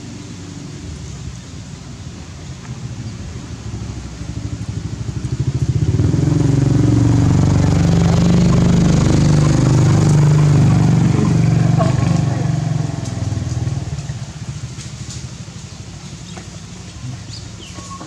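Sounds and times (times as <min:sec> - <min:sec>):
small engine running: 0:03.7 - 0:15.2.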